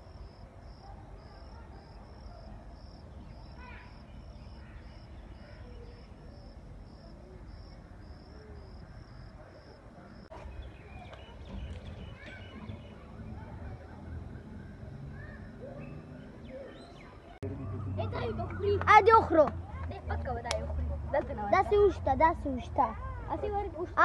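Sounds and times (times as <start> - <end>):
insect chirping: 0.0 - 10.3.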